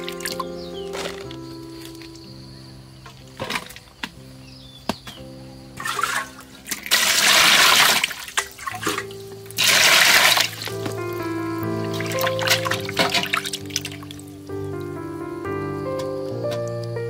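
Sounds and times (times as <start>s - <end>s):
water splashing in a metal basin: 0.0s - 1.4s, 3.1s - 4.1s, 5.8s - 14.3s
soft background music: 0.0s - 17.0s.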